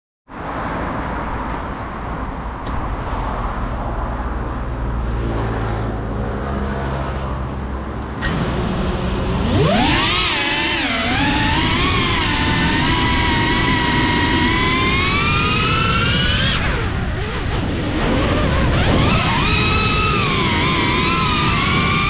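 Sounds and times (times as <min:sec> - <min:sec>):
drone motors whining: 0:08.1 - 0:22.0.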